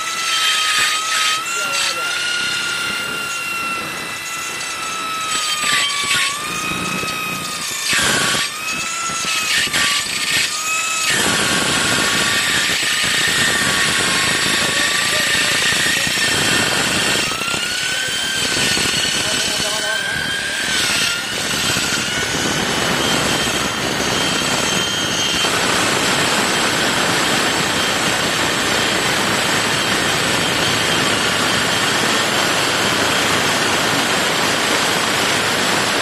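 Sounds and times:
electric drill whining: 0:00.0 - 0:36.0
harsh metal cutting noise: 0:00.0 - 0:36.0.

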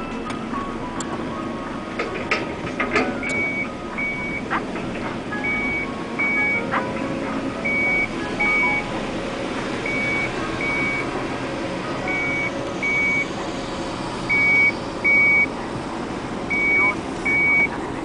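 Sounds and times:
diesel engine running: 0:00.0 - 0:18.0
excavator warning beeps: 0:03.0 - 0:09.0, 0:09.8 - 0:11.2, 0:12.0 - 0:13.4, 0:14.3 - 0:15.8, 0:16.5 - 0:17.8.

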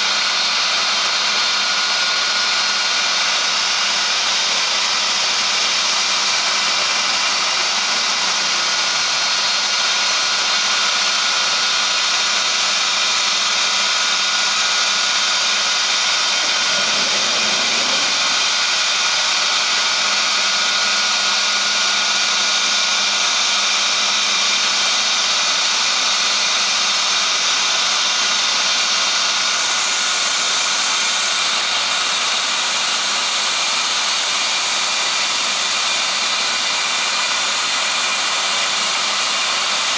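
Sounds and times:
router spindle whine: 0:00.0 - 0:39.9
cutting hiss: 0:16.1 - 0:19.3.

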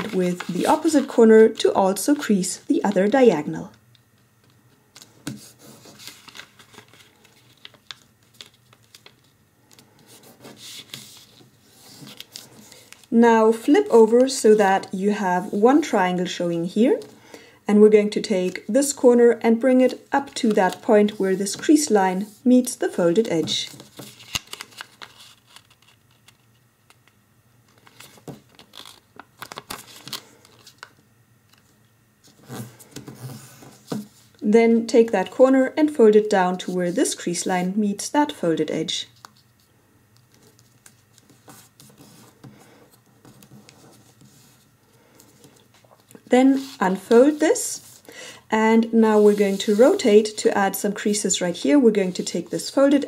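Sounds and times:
fingers rubbing paper fold: 0:00.0 - 0:02.2, 0:45.5 - 0:48.0, 0:49.1 - 0:50.3
paper rustling: 0:00.0 - 0:03.2, 0:04.9 - 0:13.1, 0:23.1 - 0:27.0, 0:27.7 - 0:31.7, 0:49.1 - 0:50.3
paper crackling clicks: 0:06.0 - 0:09.8, 0:23.2 - 0:31.7.

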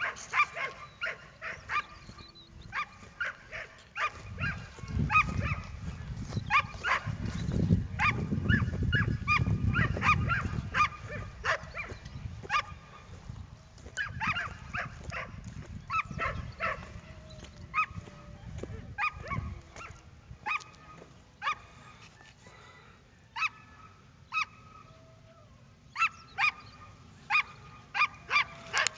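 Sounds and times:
dog barking: 0:00.0 - 0:07.3, 0:08.0 - 0:13.1, 0:14.0 - 0:17.1, 0:17.7 - 0:18.3, 0:18.9 - 0:21.8, 0:23.4 - 0:24.8, 0:26.0 - 0:28.9
wind rumble on microphone: 0:01.6 - 0:20.8.

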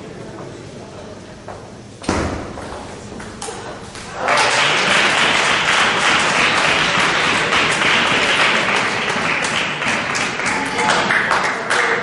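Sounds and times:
audience applause: 0:04.1 - 0:12.0.

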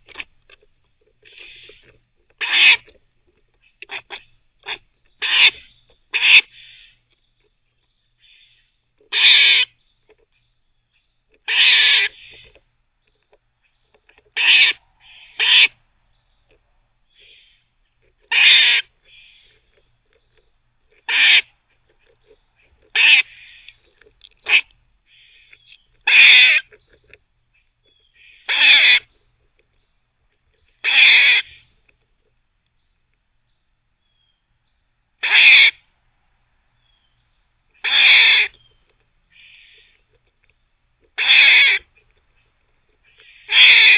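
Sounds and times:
squirrel gnawing: 0:00.0 - 0:35.1, 0:35.9 - 0:43.9
squirrel barking: 0:02.4 - 0:02.9, 0:03.7 - 0:07.0, 0:08.2 - 0:09.8, 0:11.4 - 0:12.5, 0:13.6 - 0:15.8, 0:18.3 - 0:19.6, 0:21.0 - 0:21.5, 0:22.2 - 0:26.8, 0:27.9 - 0:29.1, 0:30.8 - 0:31.7, 0:35.2 - 0:35.8, 0:37.8 - 0:38.7, 0:39.3 - 0:39.9, 0:41.2 - 0:43.9.

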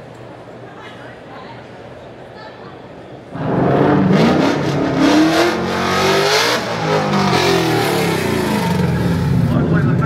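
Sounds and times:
car engine revving hard: 0:03.4 - 0:09.5.

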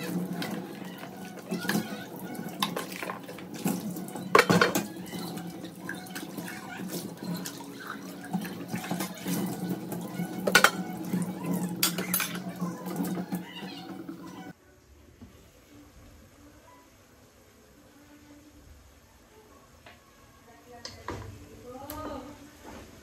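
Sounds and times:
dishes knocking against sink: 0:04.2 - 0:05.2, 0:10.4 - 0:11.0.

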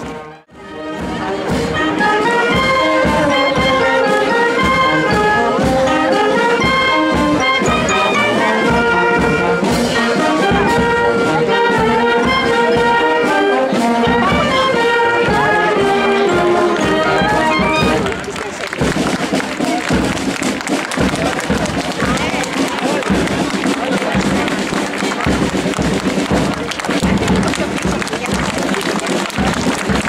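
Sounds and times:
brass band playing a march: 0:00.0 - 0:30.0.

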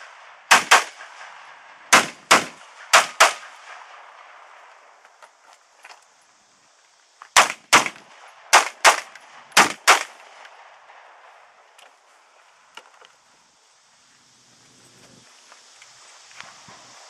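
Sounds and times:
rifle shots: 0:00.1 - 0:04.4, 0:07.3 - 0:11.1.

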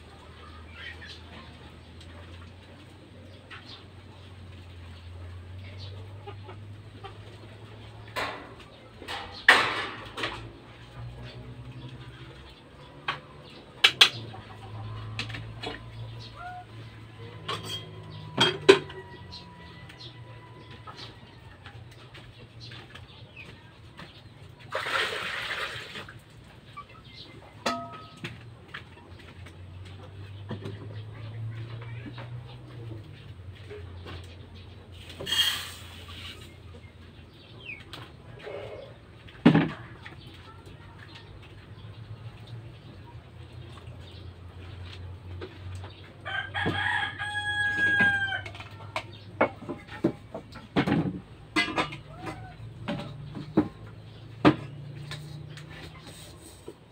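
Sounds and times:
pot and basin knocking: 0:17.4 - 0:19.0, 0:27.6 - 0:28.4
rooster crowing: 0:46.2 - 0:48.6.

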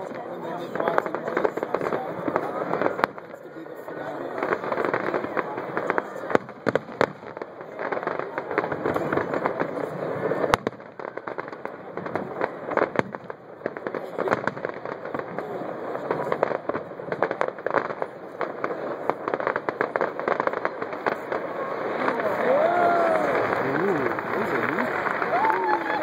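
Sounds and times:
fireworks crackling and popping: 0:00.0 - 0:26.0.

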